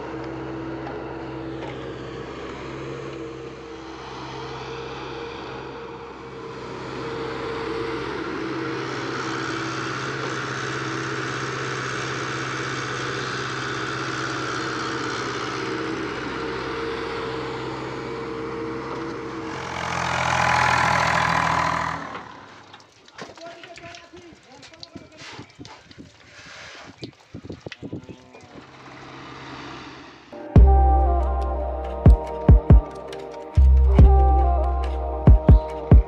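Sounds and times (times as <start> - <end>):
excavator diesel engine running: 0.0 - 22.8.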